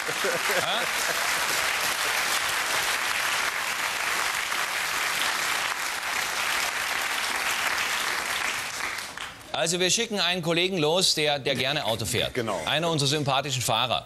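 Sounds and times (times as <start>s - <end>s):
audience applauding: 0.0s - 9.5s.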